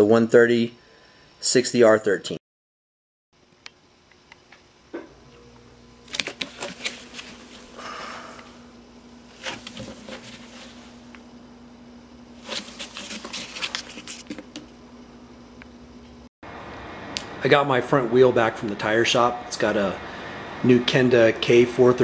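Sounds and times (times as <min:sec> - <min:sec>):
steady low hum: 0:03.4 - 0:22.0
cardboard crackling and rustling: 0:06.0 - 0:07.8, 0:09.2 - 0:11.1, 0:12.4 - 0:14.8.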